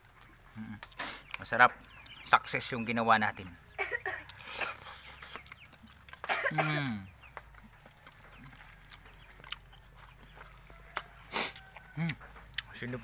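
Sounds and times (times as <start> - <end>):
faint chewing: 0.0 - 2.8, 3.8 - 13.0
man coughing: 3.8 - 4.9, 6.2 - 7.0.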